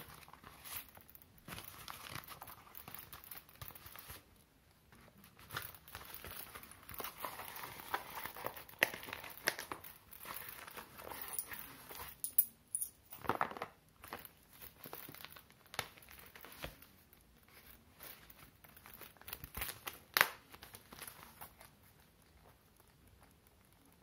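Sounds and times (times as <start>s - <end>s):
leather wallet rustling: 0.0s - 4.2s, 5.2s - 12.4s.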